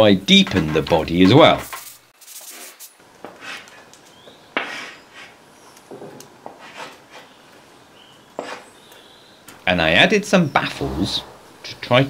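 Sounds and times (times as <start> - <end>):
chalk scraping on blackboard: 2.2 - 3.8, 4.6 - 5.4, 6.5 - 7.3, 8.4 - 8.7.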